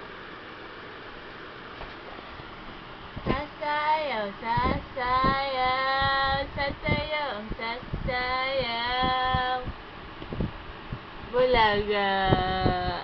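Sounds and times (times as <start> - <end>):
high voice singing aah: 3.3 - 9.8.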